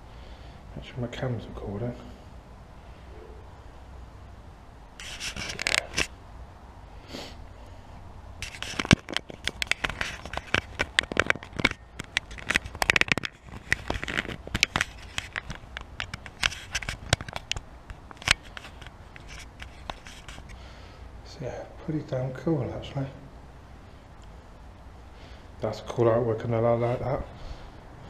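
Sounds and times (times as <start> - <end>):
brief rubbing scrapes: 5.0 - 6.1, 8.4 - 10.9, 18.1 - 20.6
microphone handling crackling: 5.0 - 6.2, 8.4 - 20.6.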